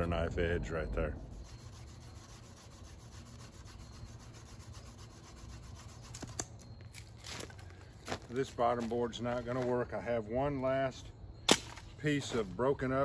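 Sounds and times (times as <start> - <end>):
bamboo scraping on bamboo: 1.2 - 9.7.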